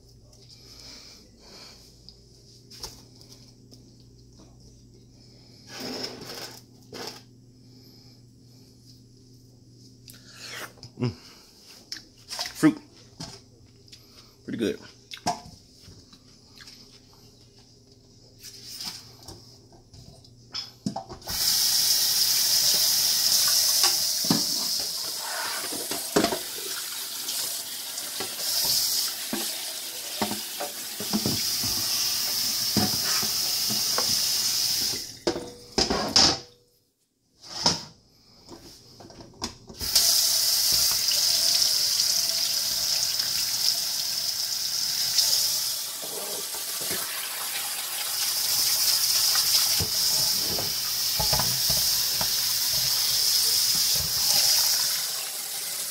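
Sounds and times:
knocks of items being rinsed: 23.7 - 26.7, 28.0 - 34.3, 49.3 - 54.6
faucet running into steel sink: 39.8 - 55.9.

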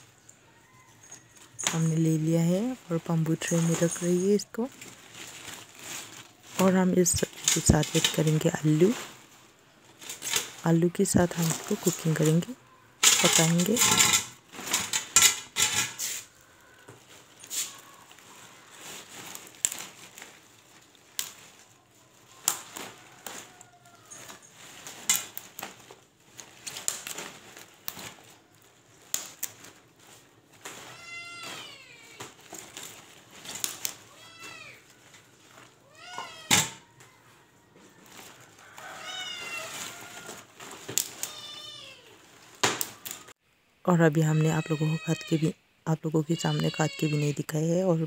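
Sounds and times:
leaves handled over steel bowl: 0.0 - 43.4
cat meowing: 39.0 - 39.9.

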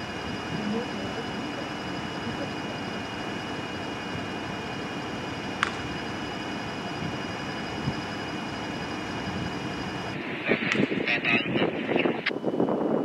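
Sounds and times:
sharp click: 5.6 - 5.8, 10.7 - 10.9.

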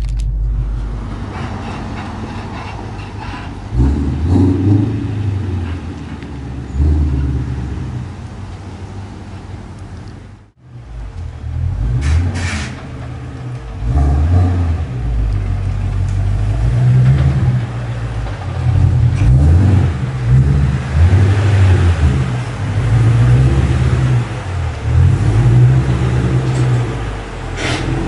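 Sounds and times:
car engine running: 0.0 - 12.1.

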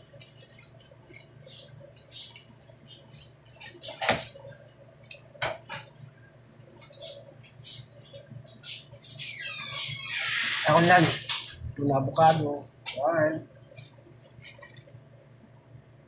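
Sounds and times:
steady low hum: 0.0 - 10.1.

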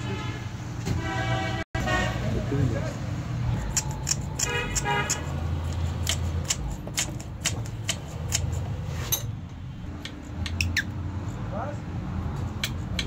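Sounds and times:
metal and plastic clicks and taps: 3.6 - 9.2, 10.0 - 10.9, 12.4 - 13.0.

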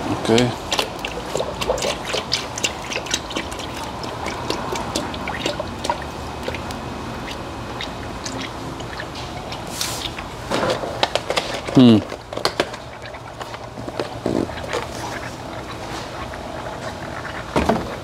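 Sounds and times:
liquid trickling into funnel: 0.4 - 10.5.

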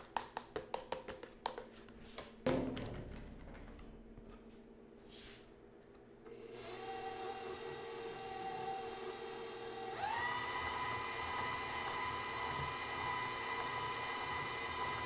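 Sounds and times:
stand mixer motor whine: 6.3 - 15.0.

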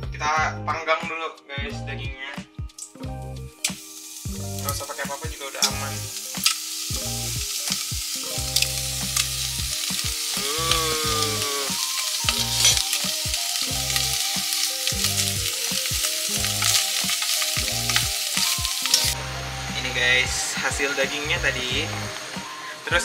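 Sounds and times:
bacon sizzling: 2.7 - 23.0
fat spitting crackles: 8.6 - 12.8.

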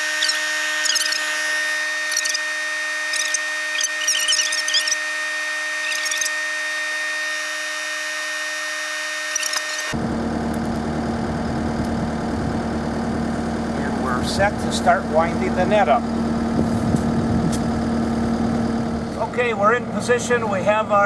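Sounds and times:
short high chirps: 0.0 - 1.3, 2.1 - 2.4, 3.1 - 5.0, 5.8 - 6.3
machine whine with held tones: 0.0 - 13.7
loader engine idling: 9.9 - 21.0.

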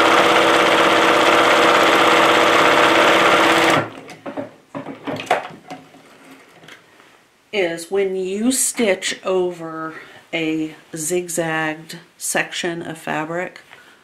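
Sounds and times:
sewing machine running: 0.0 - 4.0.

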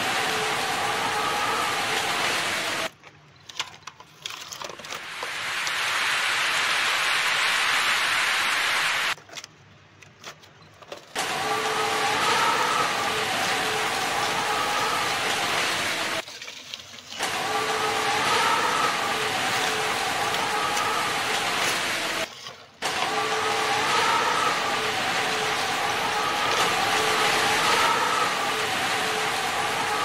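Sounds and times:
engine-like hum and hiss: 0.0 - 2.9, 11.2 - 16.2, 17.2 - 30.0
plastic toys clicking: 3.0 - 5.0.

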